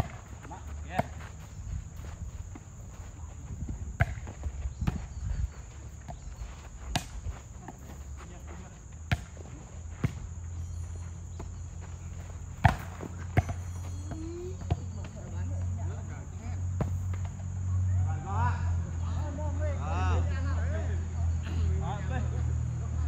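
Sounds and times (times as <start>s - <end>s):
high insect chorus: 0.0s - 23.0s
volleyball smacks: 12.6s - 14.8s.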